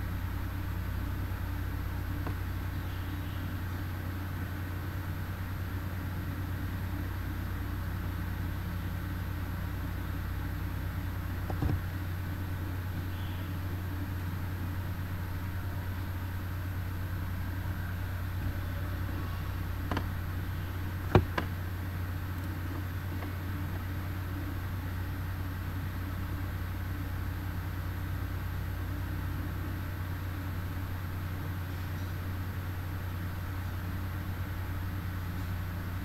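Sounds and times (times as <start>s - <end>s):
low electrical hum: 0.0s - 36.0s.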